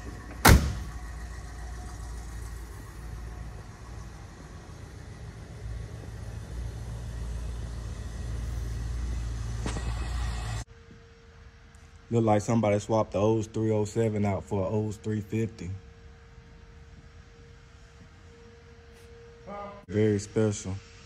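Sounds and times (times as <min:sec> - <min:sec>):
car door slamming: 0:00.0 - 0:01.0.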